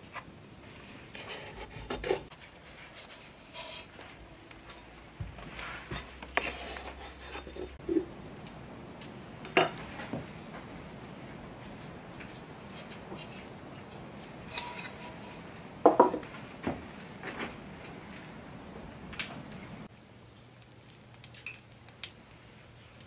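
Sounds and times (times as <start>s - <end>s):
utensils and tableware clinking: 14.4s - 16.2s.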